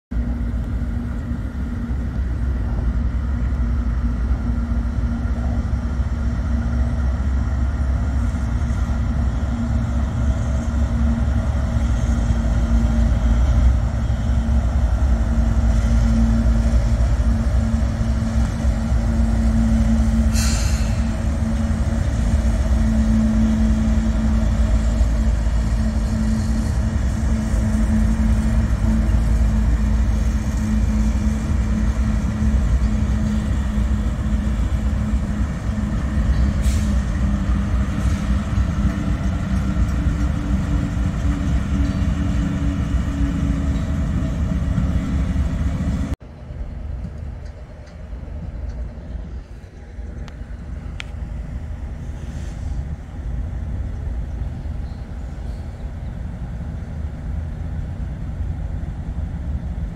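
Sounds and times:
locomotive engine drone: 0.1 - 59.9
brief high hiss: 20.3 - 21.0.

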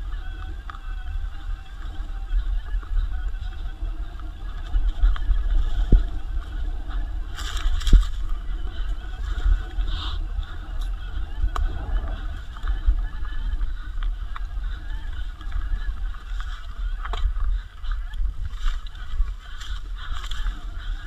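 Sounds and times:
bike tyre and drivetrain noise: 0.0 - 21.0
wind buffeting microphone: 0.0 - 21.0.

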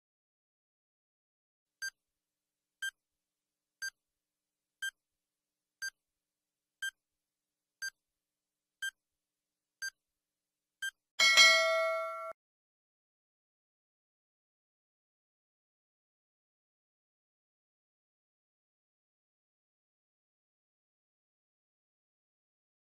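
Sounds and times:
ringing multi-tone chime: 11.2 - 12.4.

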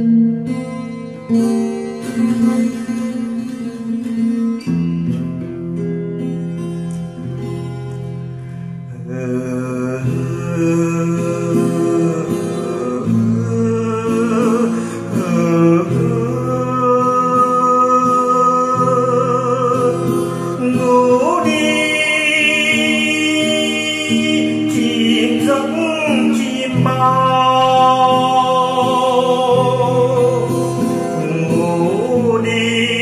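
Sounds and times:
slow song with singing: 8.4 - 33.0.

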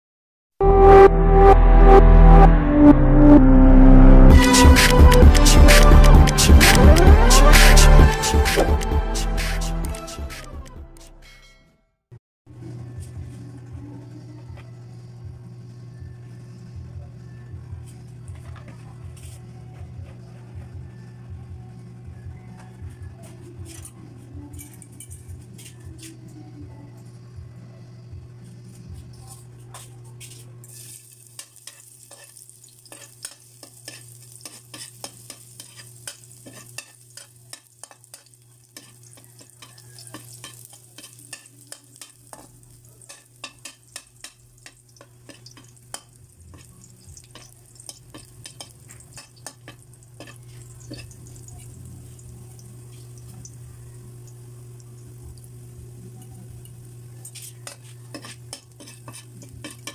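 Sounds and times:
metal spatula scraping pan: 30.2 - 51.2, 57.3 - 59.9
garlic sizzling in oil: 30.2 - 59.9.

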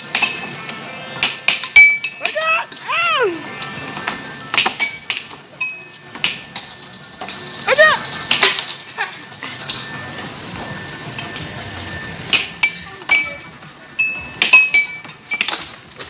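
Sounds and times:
air hockey puck clacking: 1.2 - 2.4, 6.2 - 6.8.

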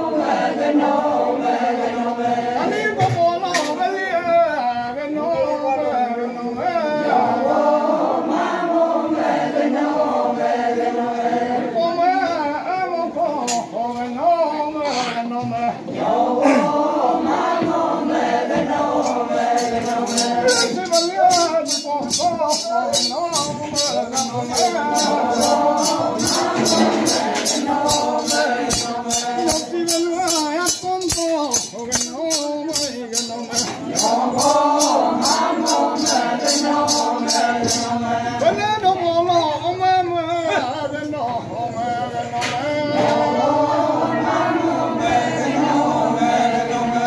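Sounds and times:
group singing folk song: 0.0 - 47.0
men and women chanting: 0.0 - 47.0
rattle shaken in a beat: 15.8 - 38.6.

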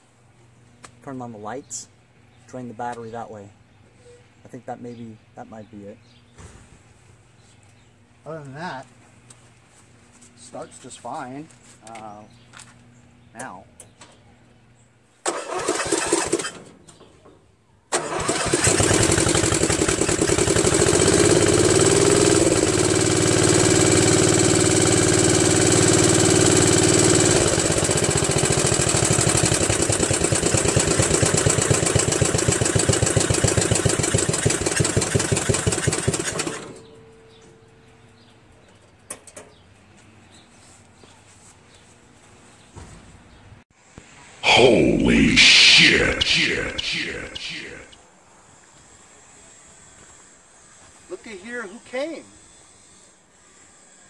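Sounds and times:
riding mower engine running: 18.0 - 37.4.

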